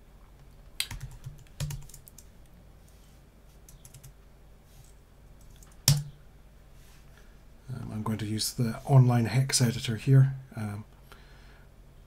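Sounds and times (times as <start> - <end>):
computer keyboard keystrokes: 0.4 - 2.3, 3.7 - 4.2, 5.4 - 6.1.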